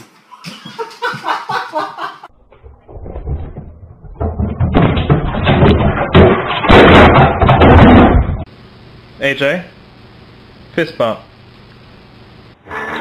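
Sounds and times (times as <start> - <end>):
loud banging and rattling: 2.5 - 8.5.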